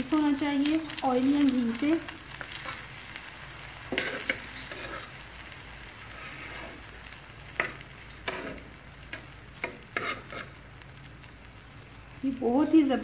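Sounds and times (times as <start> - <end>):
bread sizzling in oil: 0.0 - 13.0
metal spatula scraping pan: 3.9 - 5.2, 6.1 - 6.9, 7.6 - 8.7, 9.6 - 10.6.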